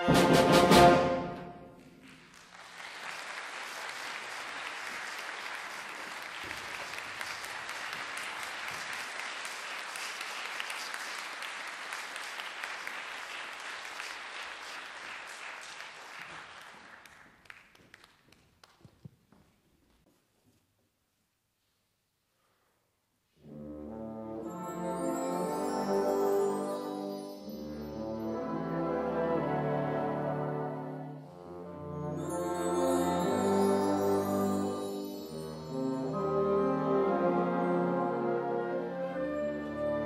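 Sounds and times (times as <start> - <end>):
brass chord: 0.0 - 1.7, 23.4 - 34.0
audience applause: 1.8 - 18.8.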